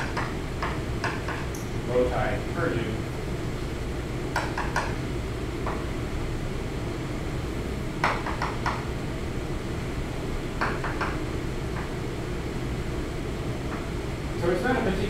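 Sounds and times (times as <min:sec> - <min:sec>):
chalk tapping on blackboard: 0:00.0 - 0:01.5, 0:08.0 - 0:08.8
low room hum: 0:00.0 - 0:15.0.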